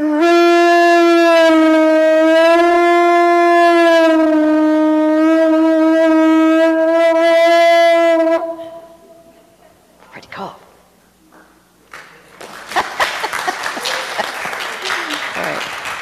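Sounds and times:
conch shell trumpet note: 0.0s - 9.2s.

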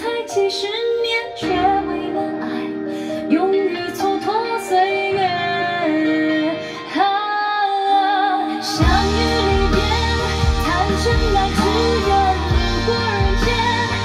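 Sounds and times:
woman singing pop ballad: 0.0s - 14.0s
deep bass accompaniment: 8.8s - 14.0s.

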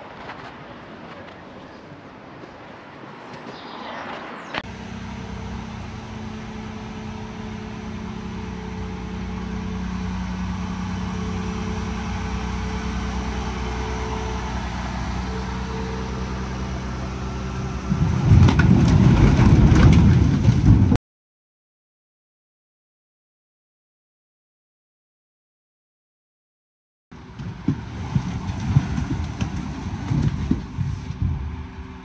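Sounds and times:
vehicle engine running: 4.6s - 20.9s, 27.1s - 32.0s
logs tumbling onto ground: 17.8s - 21.0s, 27.3s - 31.7s.

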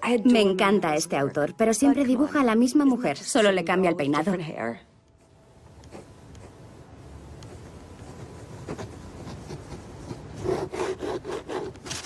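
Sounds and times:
pen scratching on paper: 5.8s - 6.6s, 7.4s - 12.0s.

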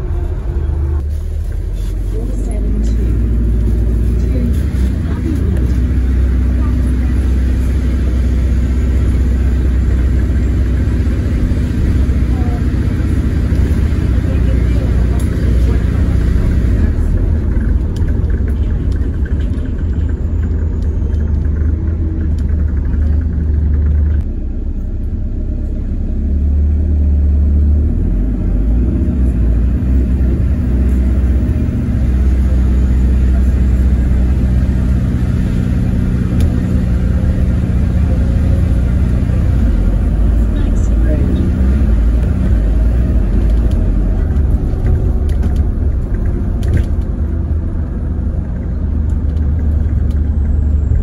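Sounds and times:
bus drivetrain and road rumble: 0.0s - 51.0s
light rattles and clicks: 13.5s - 24.2s, 42.0s - 51.0s.

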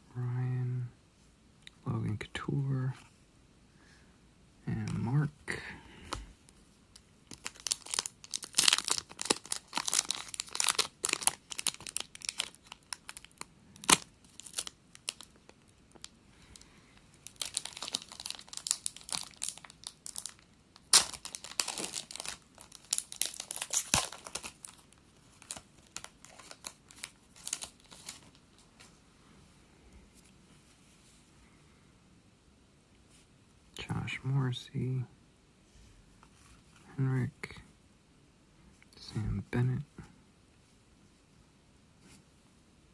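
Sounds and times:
foil wrapper tearing and crinkling: 7.3s - 16.1s, 17.2s - 28.4s.

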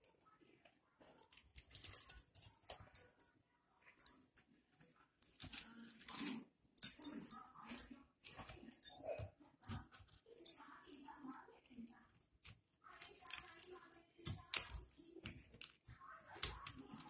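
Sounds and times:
dishes and utensils clattering: 5.2s - 7.8s, 8.6s - 11.0s.

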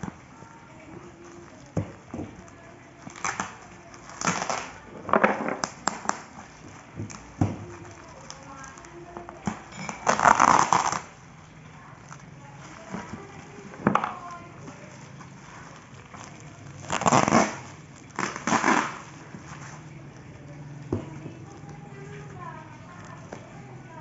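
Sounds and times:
plastic crinkling and rustling: 0.0s - 24.0s
packing tape peeling: 2.5s - 4.9s, 5.6s - 11.2s, 14.2s - 20.2s.

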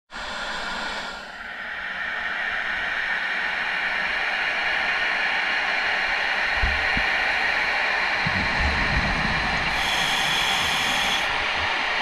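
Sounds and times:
underwater ambient hiss: 0.2s - 4.1s, 6.9s - 12.0s.

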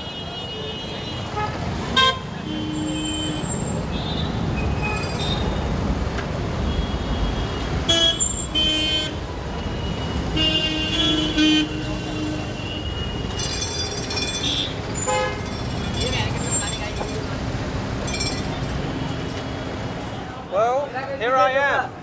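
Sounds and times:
vehicle horns honking: 0.0s - 5.6s, 6.6s - 13.6s, 14.3s - 16.2s
traffic rumble: 0.0s - 22.0s.

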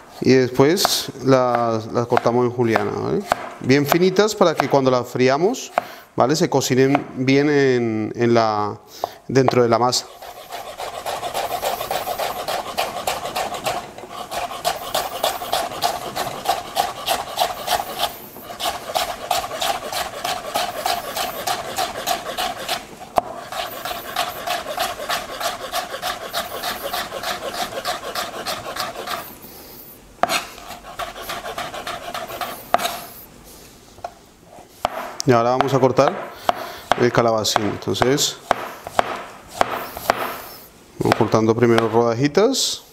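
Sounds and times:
knife slicing on cutting board: 10.0s - 29.3s, 30.2s - 33.2s, 38.5s - 40.5s.

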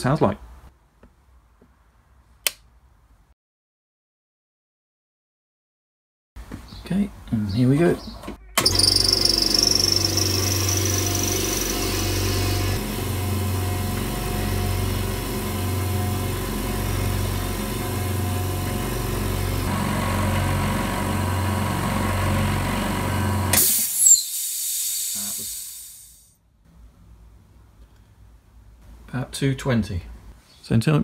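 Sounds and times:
air compressor humming: 8.6s - 26.1s
short hiss of air: 23.5s - 26.4s.

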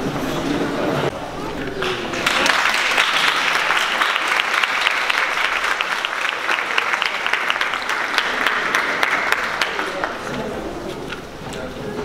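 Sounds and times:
sharp nearby claps: 1.8s - 10.2s
audience applauding: 1.8s - 10.4s.

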